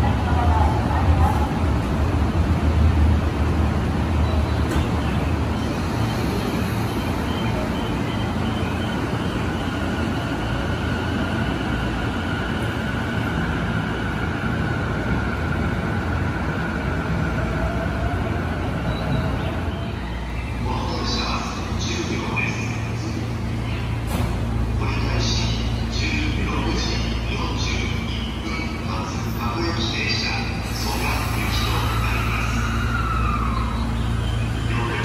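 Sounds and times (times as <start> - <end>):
electric train rolling: 27.6 - 35.0.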